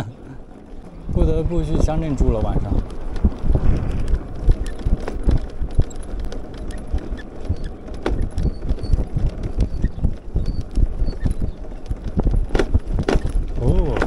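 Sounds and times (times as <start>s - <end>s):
scooter knocking and rattling: 0.0s - 14.0s
wind rumble on microphone: 0.0s - 14.0s.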